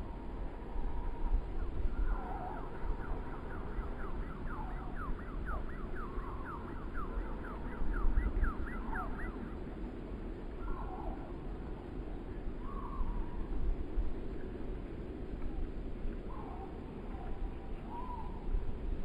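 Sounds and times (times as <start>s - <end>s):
wind gusting on microphone: 0.0s - 19.0s.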